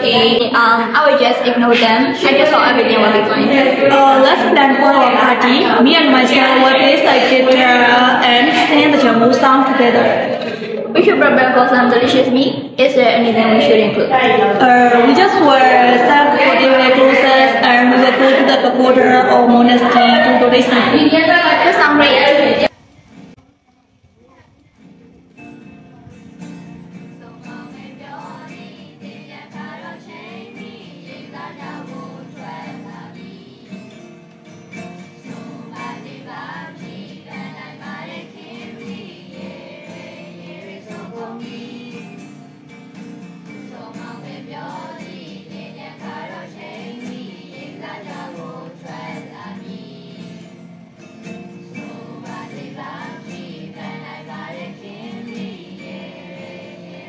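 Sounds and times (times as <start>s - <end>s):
group singing together: 0.0s - 0.5s, 1.3s - 11.2s, 13.3s - 22.9s, 26.8s - 34.1s, 34.8s - 57.0s
strummed acoustic guitars: 0.0s - 57.0s.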